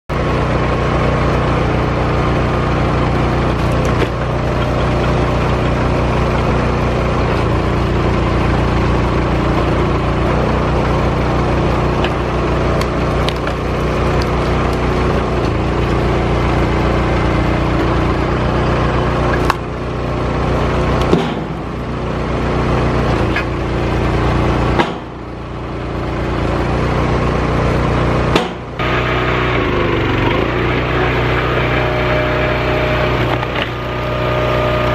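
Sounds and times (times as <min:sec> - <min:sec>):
engine running steadily: 0:00.1 - 0:34.9
firewood knocking and clattering: 0:11.9 - 0:16.1.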